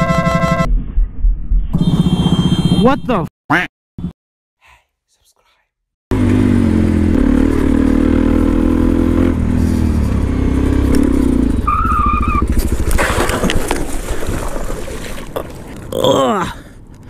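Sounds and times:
dirt bike engine: 6.1s - 14.9s
bike scraping and knocking in mud: 9.7s - 15.9s.

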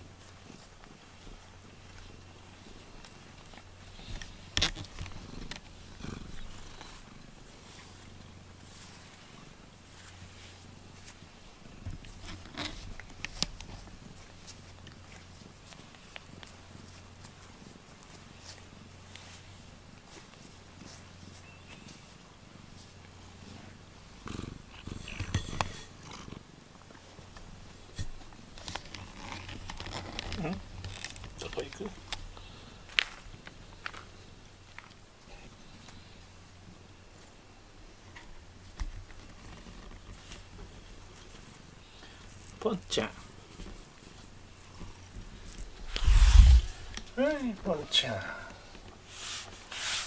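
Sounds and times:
cat purring: 0.0s - 36.1s, 39.1s - 49.1s
fur rubbing against microphone: 44.9s - 47.3s, 49.0s - 50.0s.

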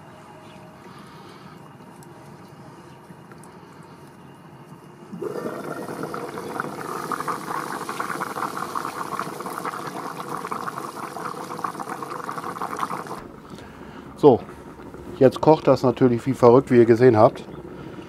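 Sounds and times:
soup bubbling in a pot: 5.1s - 18.0s.

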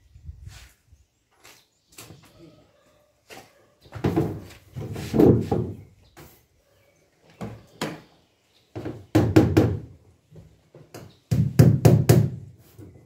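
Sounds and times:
hammer nailing into wood: 11.3s - 12.4s.

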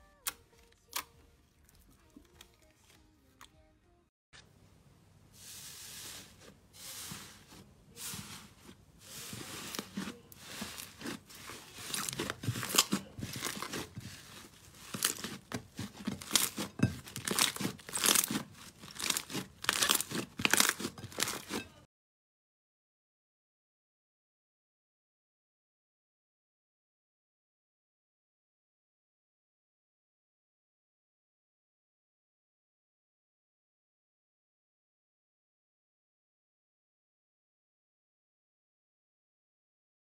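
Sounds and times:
slime squishing and popping: 9.3s - 21.6s.

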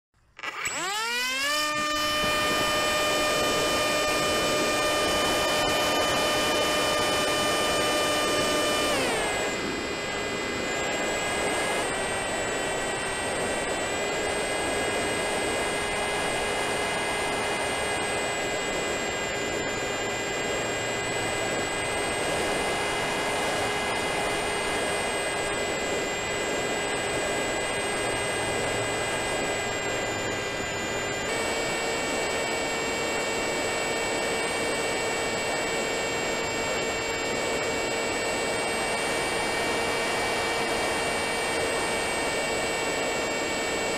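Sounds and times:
electric motor whining: 0.4s - 43.9s
wind rushing over microphone: 2.0s - 14.3s.

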